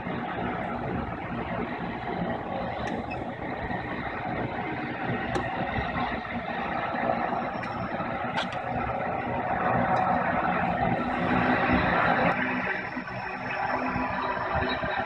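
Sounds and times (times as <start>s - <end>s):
engine idling drone: 0.0s - 15.0s.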